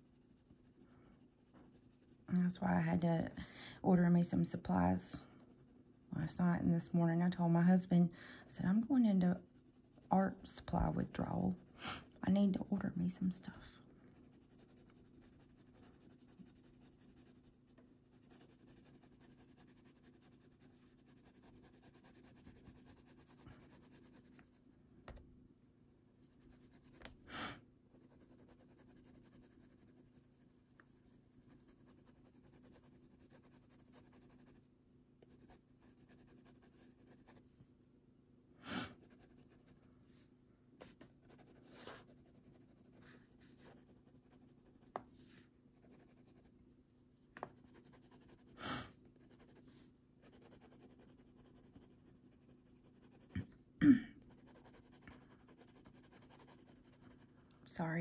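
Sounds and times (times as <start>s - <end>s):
pencil scratching on paper: 0.0s - 24.7s, 26.2s - 27.2s, 27.9s - 37.5s, 38.9s - 40.2s, 40.8s - 46.5s, 47.4s - 53.5s, 54.2s - 57.9s
low steady hum: 0.0s - 27.2s
person sniffing: 11.8s - 12.2s, 27.2s - 27.6s, 38.6s - 39.0s, 48.5s - 49.0s.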